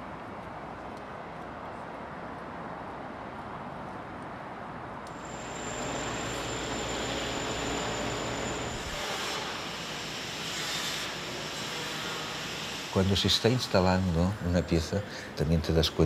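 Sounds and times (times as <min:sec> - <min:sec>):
urban traffic noise: 0:00.0 - 0:09.0
thin high steady whine: 0:05.1 - 0:15.0.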